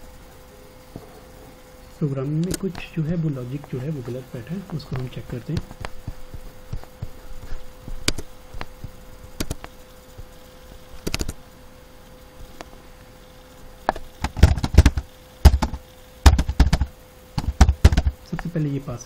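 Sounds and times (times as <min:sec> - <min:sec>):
faint steady hum: 0:00.0 - 0:19.0
computer mouse clicks: 0:02.4 - 0:02.9, 0:08.0 - 0:09.8, 0:11.0 - 0:11.4
keyboard key taps: 0:09.4 - 0:09.7, 0:13.9 - 0:18.2.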